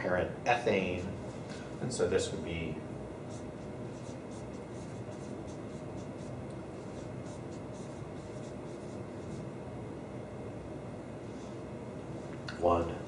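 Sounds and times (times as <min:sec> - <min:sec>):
low room hum: 0:00.0 - 0:13.0
marker scratching on whiteboard: 0:03.3 - 0:09.5.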